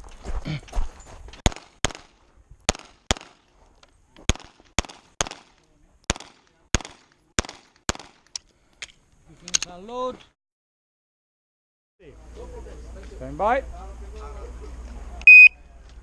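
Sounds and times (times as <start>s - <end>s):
pistol shots: 1.4s - 3.4s, 4.3s - 5.5s, 6.1s - 8.2s.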